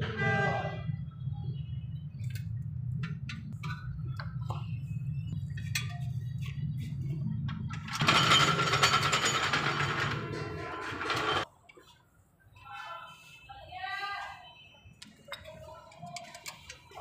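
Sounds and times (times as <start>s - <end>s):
metal parts clinking: 7.8s - 11.4s.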